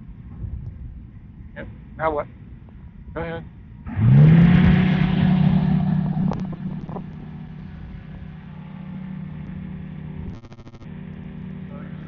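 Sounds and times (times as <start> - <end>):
trike engine droning: 3.8 - 12.0.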